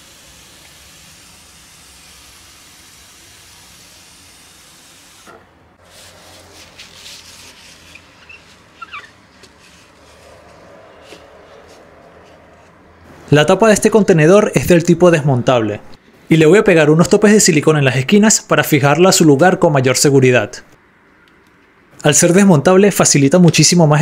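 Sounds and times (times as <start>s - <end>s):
short spray bursts: 0.0s - 8.8s
water sprayer hissing: 0.0s - 12.0s
brief squeak: 7.9s - 9.2s.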